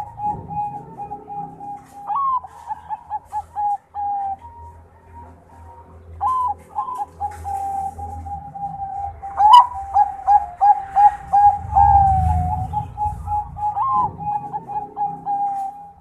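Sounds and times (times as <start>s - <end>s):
dove cooing: 0.0s - 16.0s
low rumble: 7.5s - 16.0s.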